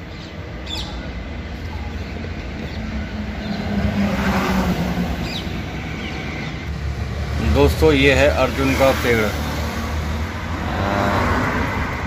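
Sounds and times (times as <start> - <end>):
vehicle engine passing by: 3.1 - 12.0.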